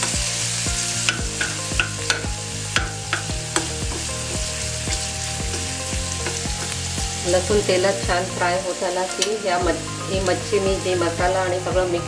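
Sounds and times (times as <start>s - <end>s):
garlic sizzling in hot oil: 0.0s - 12.0s
steel spoon scraping a pan: 0.8s - 7.7s.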